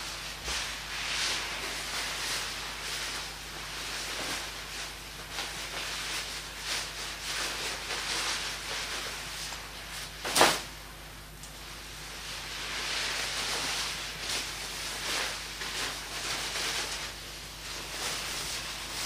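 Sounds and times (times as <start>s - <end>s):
fire hissing and crackling: 0.0s - 10.9s, 11.6s - 19.0s
loud sharp crack: 10.2s - 10.7s.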